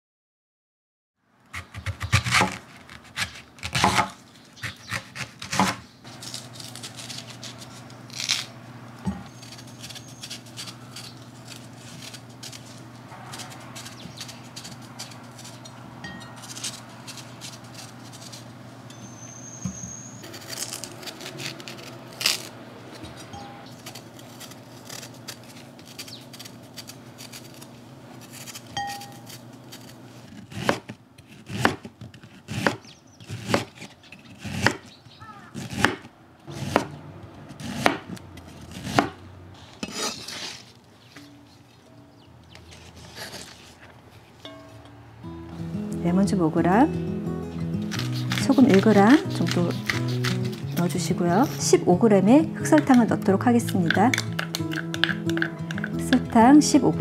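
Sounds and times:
knife cutting fruit: 1.6 - 41.5, 42.5 - 44.7, 47.6 - 51.8, 52.6 - 56.2
steady low hum: 5.4 - 30.3
peeling and coring scrapes: 38.4 - 41.8, 42.5 - 44.7, 47.7 - 51.6.

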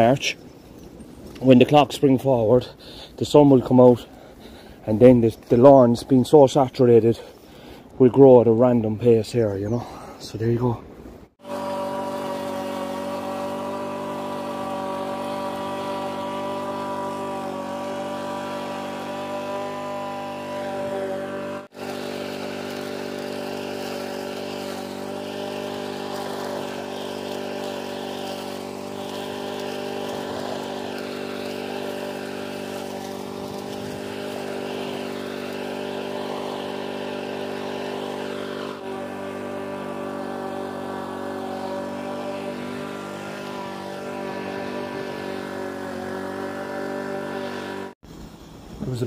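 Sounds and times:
lawn mower engine running: 11.4 - 48.8.

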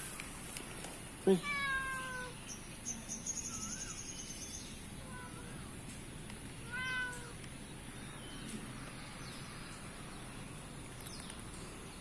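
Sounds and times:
outdoor background noise: 0.0 - 12.0
faint high bird chirps: 2.1 - 5.6.

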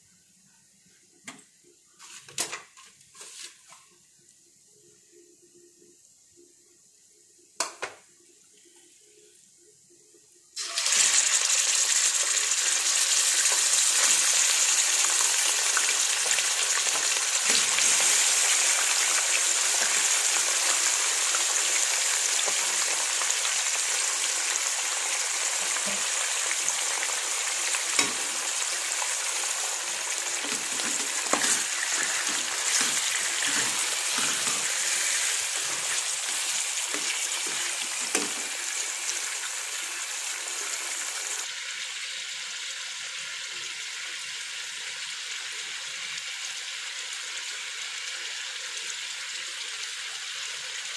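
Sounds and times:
meat sizzling in hot oil: 10.6 - 50.9
knocks of meat turned in pan: 30.2 - 39.1.

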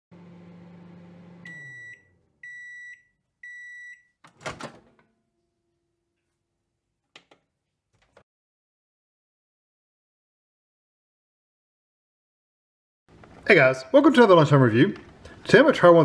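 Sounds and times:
microwave oven humming: 0.1 - 3.8.

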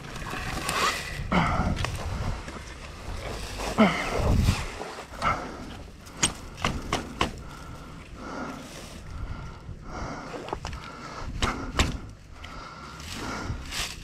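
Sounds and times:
man grunting and breathing hard: 1.2 - 2.3, 3.7 - 4.5.

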